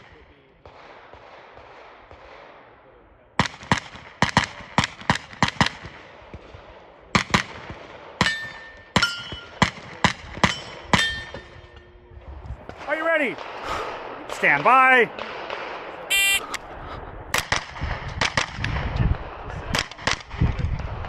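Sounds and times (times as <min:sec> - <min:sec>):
struck steel targets ringing: 0:10.4 - 0:11.6.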